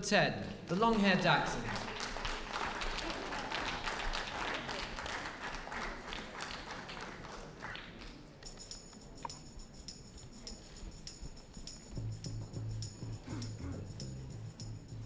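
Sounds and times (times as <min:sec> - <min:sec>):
audience clapping: 0:00.8 - 0:08.5.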